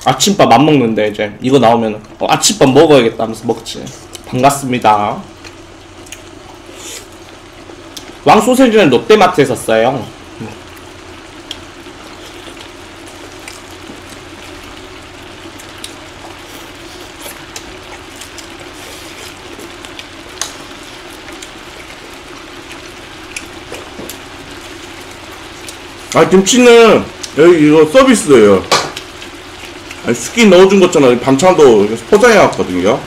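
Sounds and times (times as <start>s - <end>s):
soup simmering and bubbling: 5.3s - 27.5s, 28.2s - 30.4s.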